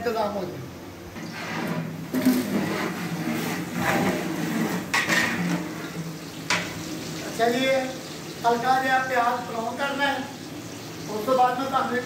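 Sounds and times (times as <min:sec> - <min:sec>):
metal ladle scraping pot: 0:01.2 - 0:06.0
onions sizzling in hot oil: 0:02.7 - 0:12.0.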